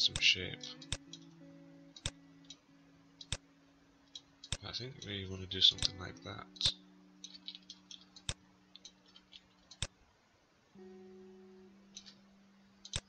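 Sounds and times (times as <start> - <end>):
faint background music: 0.0 - 13.0
computer mouse clicking: 0.1 - 1.3, 2.0 - 2.6, 3.2 - 3.4, 4.1 - 5.1, 6.6 - 10.0, 11.9 - 12.2.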